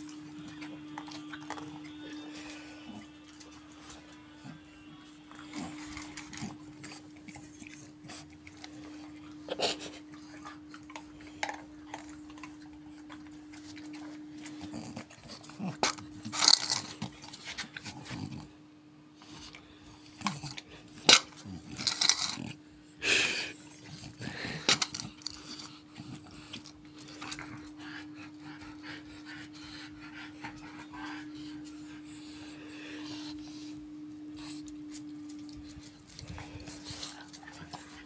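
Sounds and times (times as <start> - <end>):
dog eating dry kibble: 0.0 - 18.5, 19.2 - 22.6, 23.6 - 38.0
faint steady hum: 0.0 - 38.0
dog breathing: 36.0 - 38.0.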